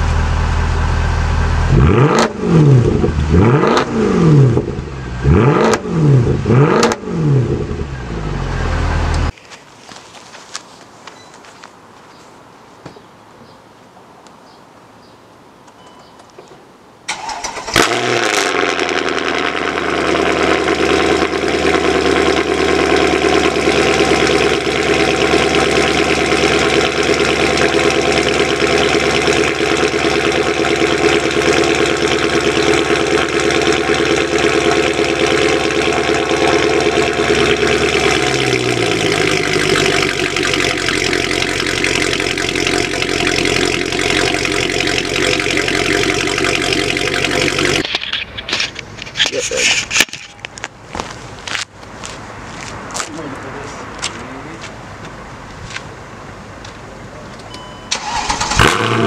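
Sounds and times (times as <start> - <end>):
car engine starting and idling: 0.0 - 9.3, 17.1 - 49.1, 57.3 - 59.0.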